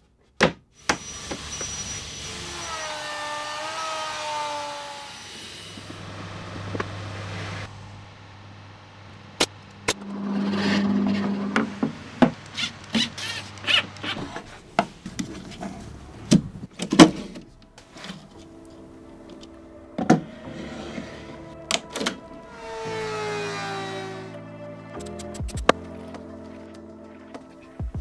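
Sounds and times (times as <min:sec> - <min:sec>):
low steady hum: 0:05.9 - 0:12.9.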